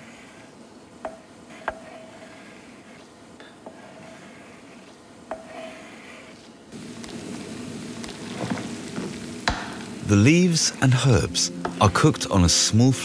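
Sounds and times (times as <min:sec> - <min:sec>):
spatula scraping cutting board: 0:01.5 - 0:03.0, 0:03.6 - 0:06.5.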